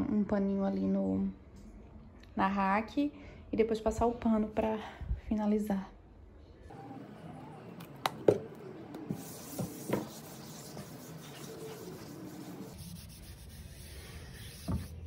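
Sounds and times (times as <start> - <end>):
cloth wiping wooden furniture: 9.0 - 15.0.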